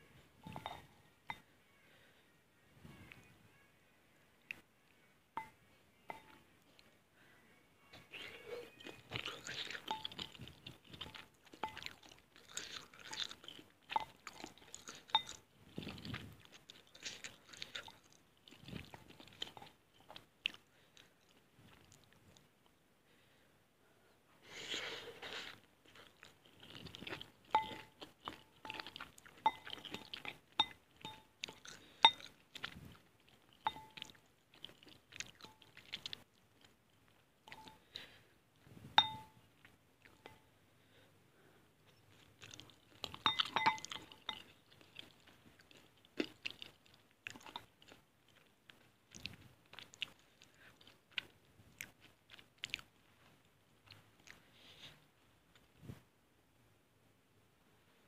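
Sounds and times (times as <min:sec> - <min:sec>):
fork and spoon clinking on glass bowl: 0:00.4 - 0:01.4, 0:14.8 - 0:15.4, 0:27.5 - 0:28.0, 0:28.6 - 0:31.3, 0:33.6 - 0:34.1, 0:39.0 - 0:39.4, 0:43.0 - 0:44.5
chewing noodles: 0:08.2 - 0:22.8, 0:25.1 - 0:38.2, 0:41.8 - 0:55.8.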